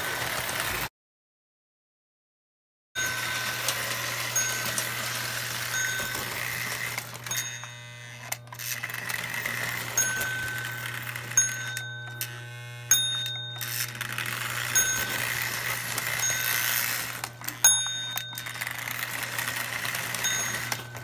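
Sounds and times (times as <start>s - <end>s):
toy train wheels rolling on rails: 0.0s - 0.9s, 3.0s - 21.0s
high metallic pings: 17.6s - 18.8s.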